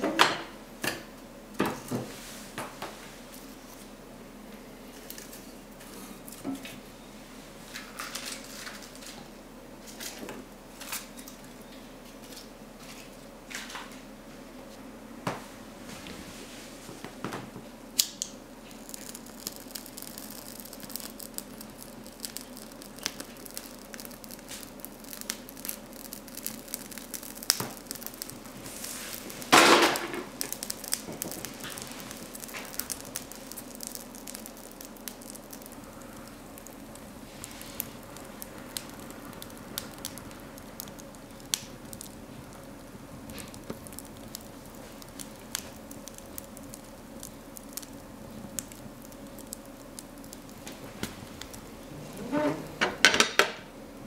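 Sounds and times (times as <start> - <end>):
fire crackling and popping: 7.5 - 13.9, 16.8 - 54.0
fire rushing burst: 35.7 - 46.2.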